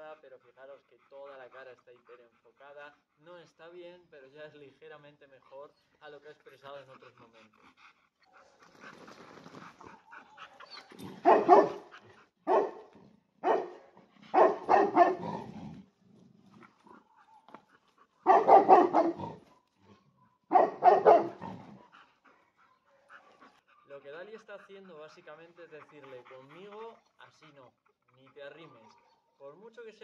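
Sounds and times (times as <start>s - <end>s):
dogs barking and growling: 6.6s - 29.4s.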